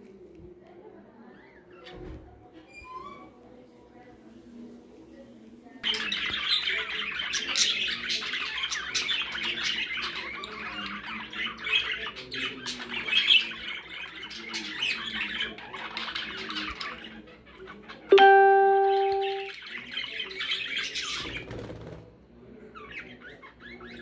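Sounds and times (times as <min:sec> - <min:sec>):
budgerigars chirping and squawking: 0:05.8 - 0:18.1, 0:19.5 - 0:21.7, 0:22.7 - 0:24.0.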